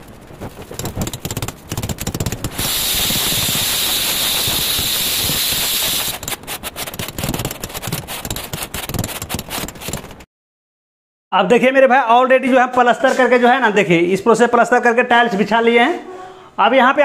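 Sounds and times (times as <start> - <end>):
steady hiss: 2.5 - 6.2
straight edge scraping mortar: 5.7 - 10.1.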